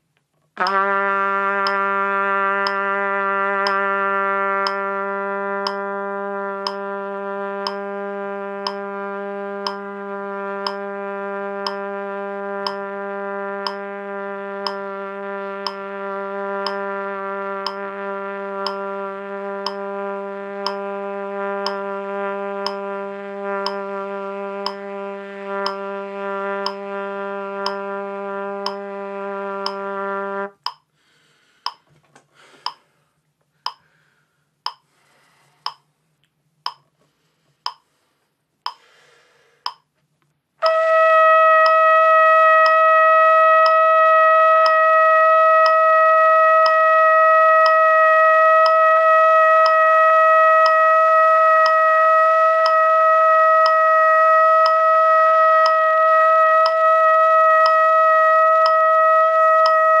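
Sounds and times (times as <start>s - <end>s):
trumpet long tone: 0.6s - 30.7s, 40.6s - 60.0s
metronome clicking: 1.6s - 1.8s, 2.6s - 2.8s, 3.6s - 3.8s, 4.6s - 4.8s, 5.6s - 5.9s, 6.6s - 6.9s, 7.6s - 7.8s, 8.6s - 8.9s, 9.6s - 9.9s, 10.6s - 10.8s, 11.6s - 11.9s, 12.6s - 12.9s, 13.6s - 13.9s, 14.6s - 14.8s, 15.6s - 15.8s, 16.6s - 16.8s, 17.6s - 17.8s, 18.6s - 18.8s, 19.6s - 19.8s, 20.6s - 20.8s, 21.6s - 21.8s, 22.6s - 22.8s, 23.6s - 23.8s, 24.6s - 24.8s, 25.6s - 25.8s, 26.6s - 26.8s, 27.6s - 27.8s, 28.6s - 28.8s, 29.6s - 29.9s, 30.6s - 30.9s, 32.6s - 32.8s, 33.7s - 33.9s, 34.7s - 34.9s, 36.7s - 36.9s, 37.7s - 37.9s, 38.7s - 38.9s, 39.7s - 39.9s, 41.6s - 41.8s, 42.6s - 42.8s, 43.6s - 43.9s, 44.6s - 44.8s, 45.6s - 45.9s, 46.6s - 46.9s, 47.6s - 47.9s, 48.6s - 48.8s, 49.6s - 49.9s, 50.6s - 50.8s, 51.6s - 51.8s, 52.6s - 52.9s, 53.6s - 53.8s, 54.6s - 54.9s, 55.6s - 55.8s, 56.6s - 56.8s, 57.6s - 57.8s, 58.6s - 58.8s, 59.6s - 60.0s.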